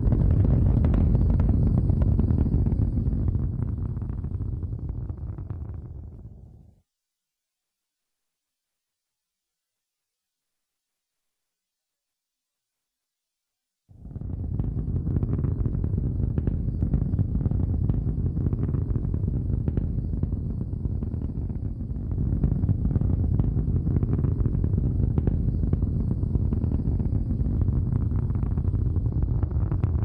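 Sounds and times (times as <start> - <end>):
deep rumble with crackles: 0.0 - 6.8, 13.9 - 30.0.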